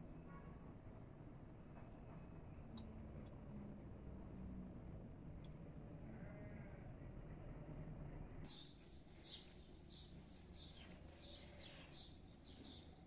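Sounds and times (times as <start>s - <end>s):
bird chirping: 8.5s - 13.0s.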